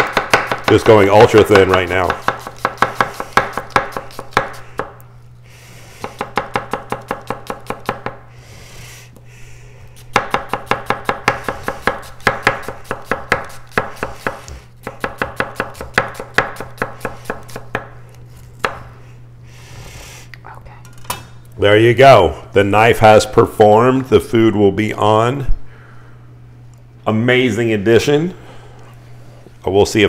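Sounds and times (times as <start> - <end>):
knife slicing onion on board: 0.0 - 5.0, 5.9 - 8.2, 10.0 - 18.9.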